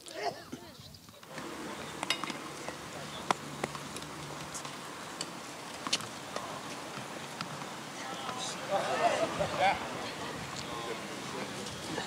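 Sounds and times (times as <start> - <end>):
faint steady hum: 1.2 - 12.0
tennis ball knocks: 1.3 - 8.7.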